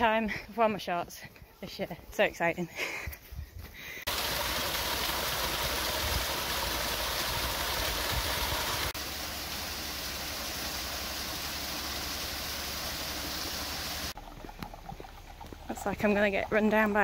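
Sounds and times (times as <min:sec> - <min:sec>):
rushing water: 0:04.1 - 0:17.0.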